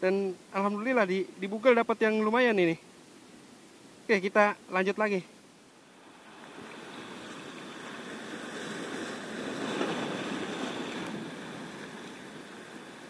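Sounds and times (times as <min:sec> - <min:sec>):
sea waves washing against rocks: 0:05.9 - 0:13.0.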